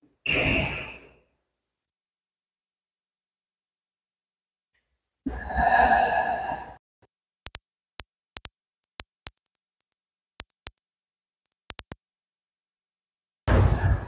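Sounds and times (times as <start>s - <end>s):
sharp short clicks: 7.4s - 10.8s, 11.4s - 12.0s.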